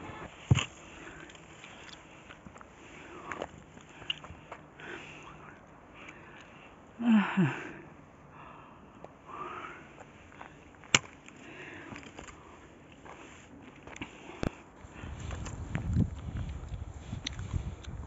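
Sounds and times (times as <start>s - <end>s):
person breathing heavily: 0.0s - 10.8s, 11.4s - 15.4s.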